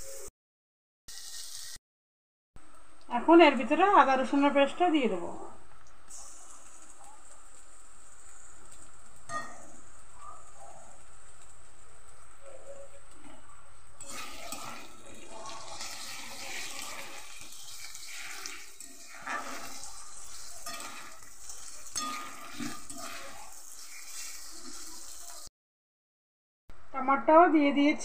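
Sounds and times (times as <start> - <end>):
onions sizzling in hot oil: 1.1 - 1.8, 6.1 - 25.5
metal spatula scraping pan: 14.0 - 14.9, 17.8 - 25.1.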